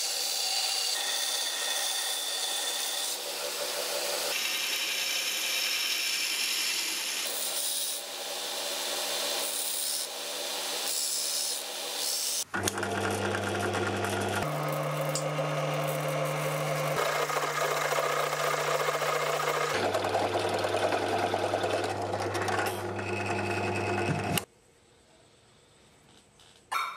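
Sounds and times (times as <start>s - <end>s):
belt grinder rasping metal: 0.0s - 24.5s
drill press motor humming: 12.5s - 24.5s.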